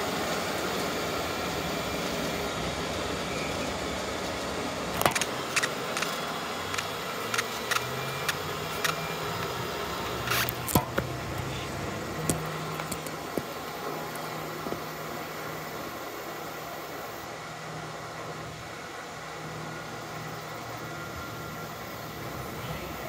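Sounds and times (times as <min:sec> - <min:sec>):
steady mechanical rushing noise: 0:00.0 - 0:23.0
camera handling clicks and knocks: 0:05.0 - 0:06.1.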